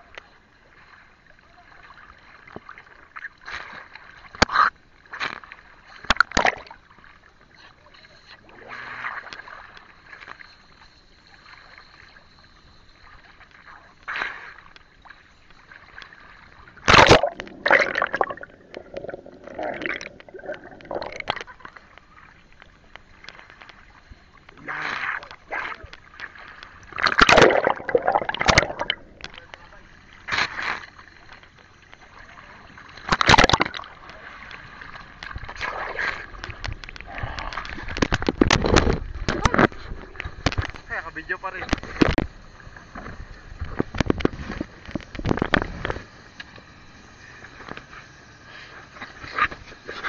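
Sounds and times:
seawater sloshing and gurgling: 0.0 - 46.1, 47.2 - 50.0
water splashes: 0.0 - 46.5
faint high whine: 7.1 - 37.7.

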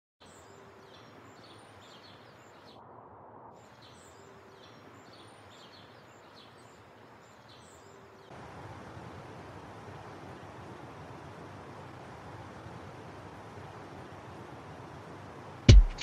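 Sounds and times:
steady low hiss: 0.2 - 16.0.

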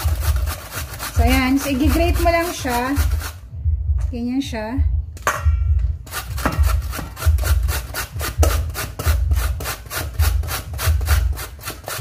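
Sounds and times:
carrot rasping on grater: 0.0 - 3.4, 6.1 - 12.0
dull low knock: 3.4 - 4.2, 4.8 - 7.7, 8.3 - 9.6.

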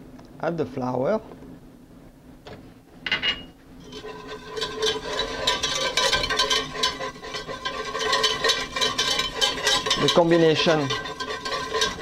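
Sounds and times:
whisk scraping a steel pot: 3.8 - 12.0.

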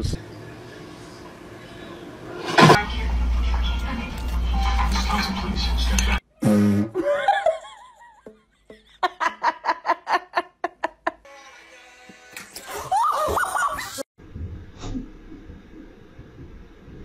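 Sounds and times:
music: 2.7 - 6.2
person laughing hard: 8.9 - 11.2, 12.8 - 14.0.

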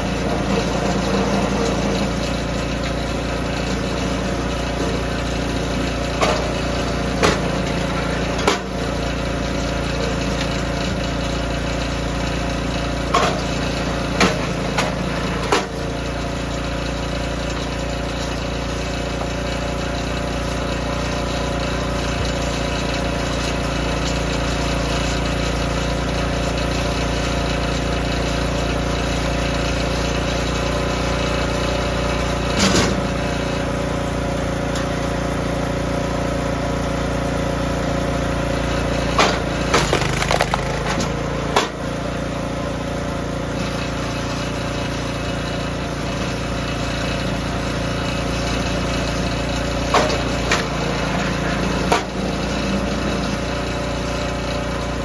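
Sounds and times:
small gasoline engine running: 0.0 - 55.0
wood cracking and splitting: 39.7 - 41.3.

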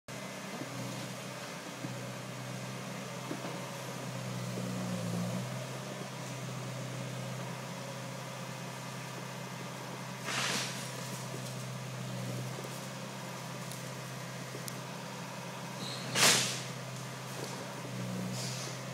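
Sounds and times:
excavator diesel engine idling: 0.1 - 18.9
short loud hiss: 10.2 - 11.0, 16.1 - 16.7.

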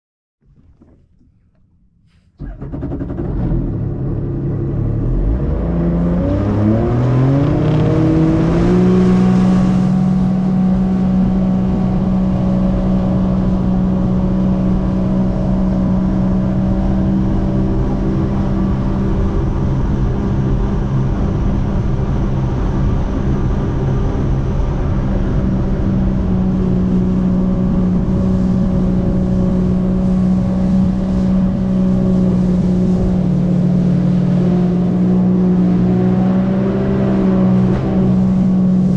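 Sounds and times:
jet ski engine accelerating: 0.4 - 38.9
water rushing and spraying: 6.0 - 14.0, 24.9 - 38.9.

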